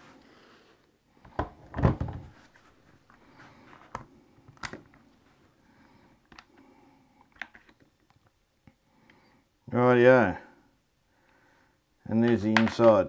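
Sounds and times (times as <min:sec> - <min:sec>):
plastic housing knocks and clicks: 0:12.3 - 0:13.0.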